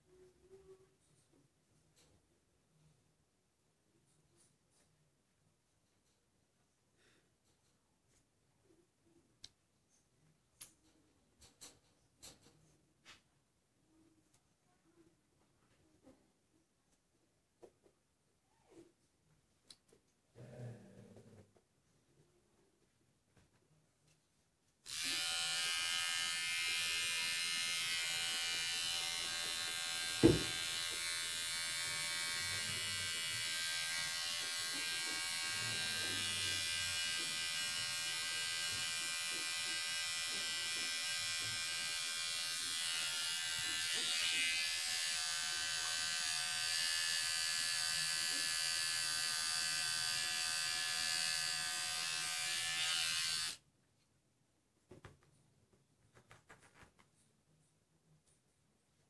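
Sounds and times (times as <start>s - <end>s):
nail grinder buzzing: 24.9s - 53.6s.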